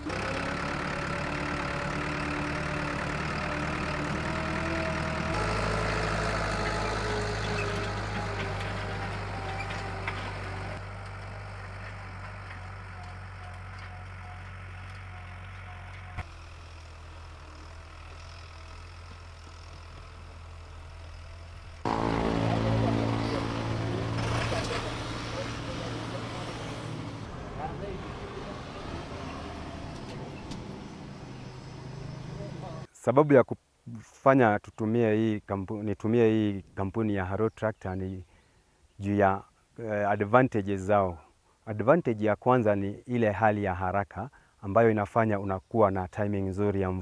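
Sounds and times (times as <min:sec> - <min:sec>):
tractor engine running: 0:00.0 - 0:32.9.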